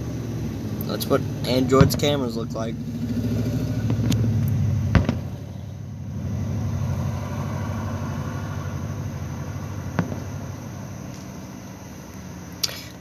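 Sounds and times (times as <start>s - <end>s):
vehicle engine idling: 0.0s - 13.0s
sharp bang: 4.9s - 5.7s.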